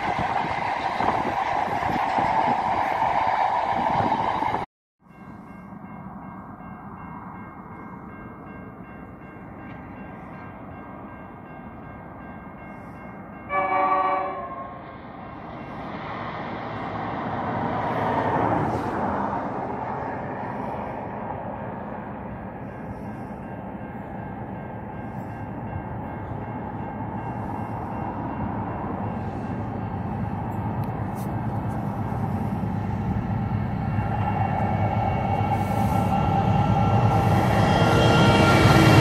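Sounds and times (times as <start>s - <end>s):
approaching train rumble: 0.0s - 39.0s
freight train rumbling past: 0.0s - 39.0s
locomotive horn blast: 13.5s - 15.0s.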